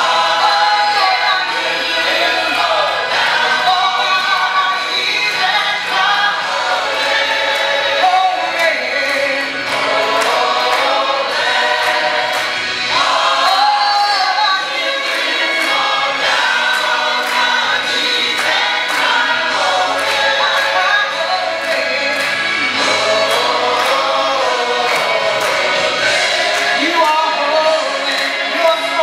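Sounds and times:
band with steady beat: 0:00.0 - 0:29.0
gospel choir singing: 0:00.0 - 0:29.0
soloist singing: 0:26.6 - 0:29.0.

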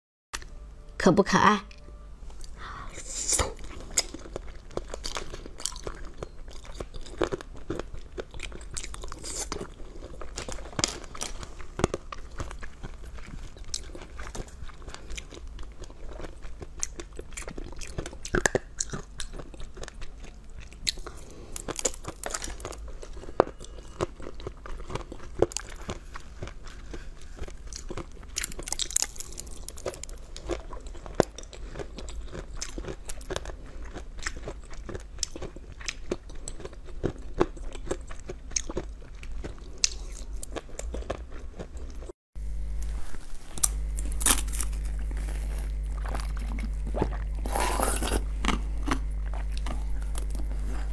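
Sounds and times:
crunchy candy bites and chewing: 0:02.4 - 0:42.1, 0:43.4 - 0:50.9.

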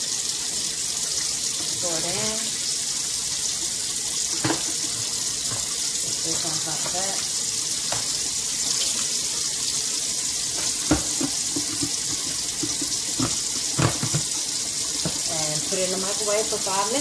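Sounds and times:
faucet running into steel sink: 0:00.0 - 0:17.0.

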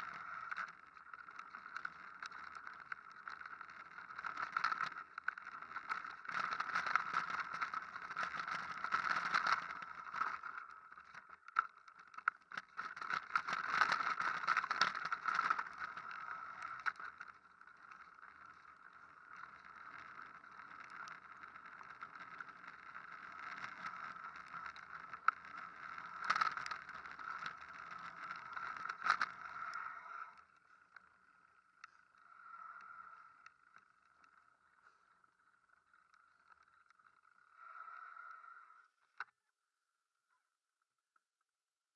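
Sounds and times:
bike tyres rumbling over stones: 0:00.0 - 0:30.4
bike rattling: 0:00.0 - 0:38.3.

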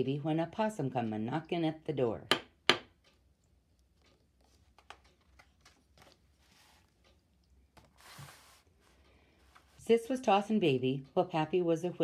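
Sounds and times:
paper page turning: 0:04.0 - 0:07.1.

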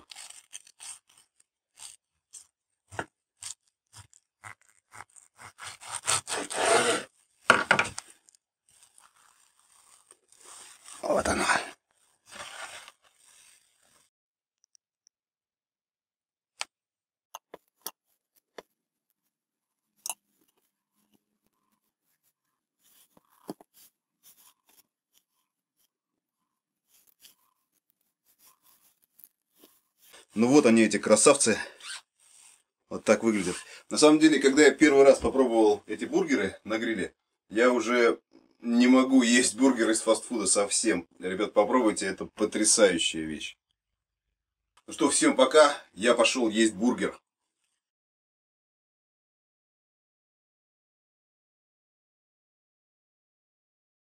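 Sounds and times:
knife sawing through bread bun: 0:00.0 - 0:07.2
soft clicks and rustles of food: 0:07.2 - 0:11.0.

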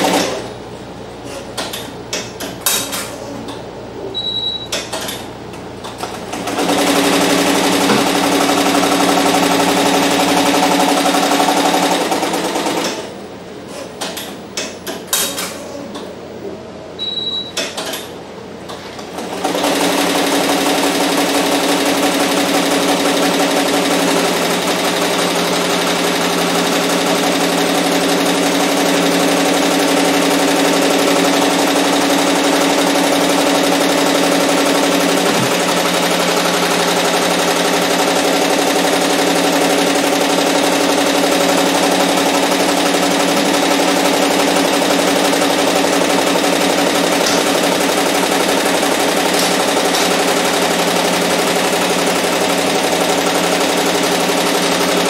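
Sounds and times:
short high beep: 0:04.1 - 0:04.8, 0:17.0 - 0:17.6.

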